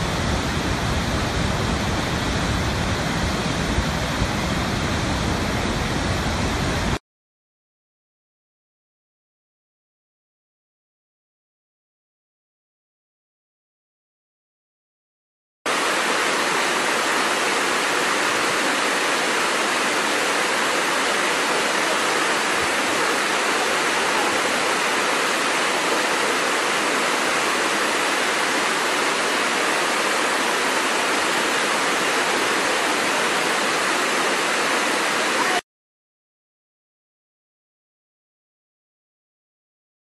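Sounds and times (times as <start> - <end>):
waterfall rushing: 0.0 - 7.0, 15.7 - 35.6.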